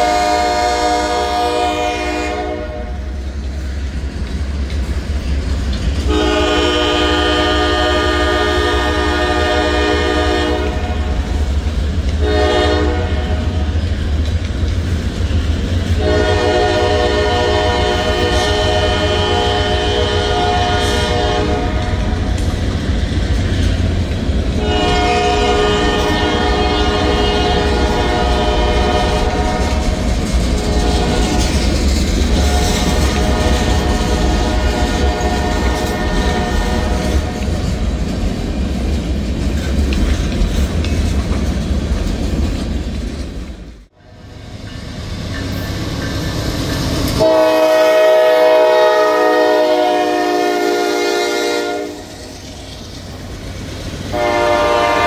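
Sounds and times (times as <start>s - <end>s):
locomotive air horn blasts: 0.0s - 3.1s, 6.0s - 11.3s, 12.2s - 13.7s, 16.0s - 22.3s, 24.5s - 31.7s, 32.3s - 37.6s, 47.2s - 52.2s, 54.1s - 55.0s
freight train rumble and wheel clatter: 0.0s - 55.0s.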